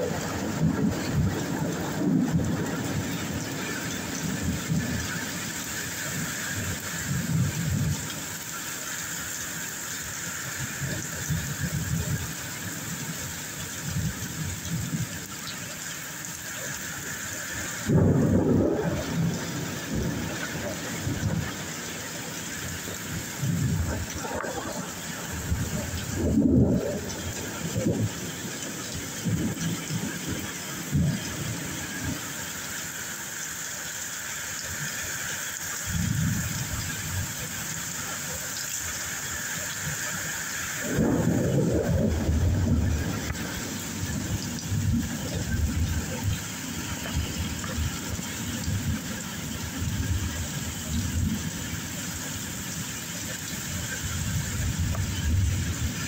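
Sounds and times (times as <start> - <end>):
wind gusts rumbling: 0.0 - 8.6, 16.6 - 32.5, 39.7 - 56.0
rain falling: 0.0 - 56.0.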